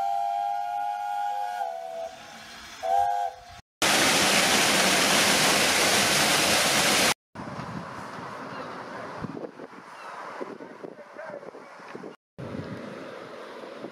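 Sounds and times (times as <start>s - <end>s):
steam whistle blasts: 0.0s - 3.6s
water rushing through lock gates: 3.8s - 7.2s.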